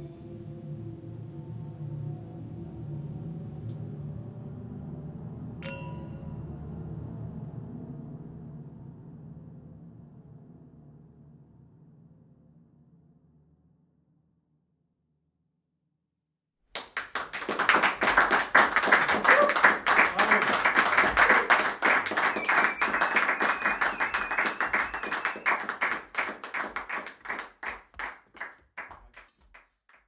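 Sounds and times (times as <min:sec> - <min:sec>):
audience applauding: 0:16.8 - 0:30.0.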